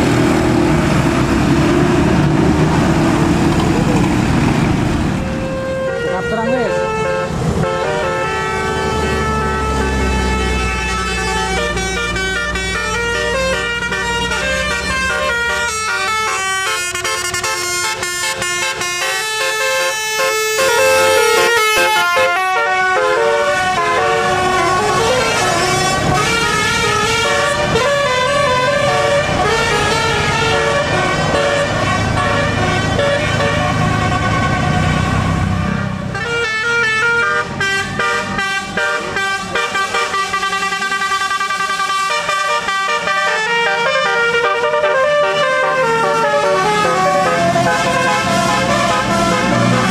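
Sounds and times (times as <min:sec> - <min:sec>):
bus engine running: 0:00.0 - 0:49.9
multi-tone air horns playing tunes: 0:05.2 - 0:49.9.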